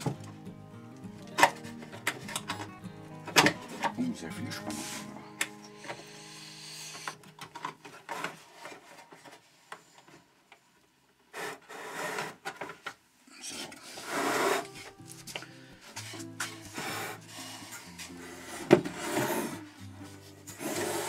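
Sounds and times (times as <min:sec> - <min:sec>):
hand sliding over wood: 0:04.5 - 0:07.2.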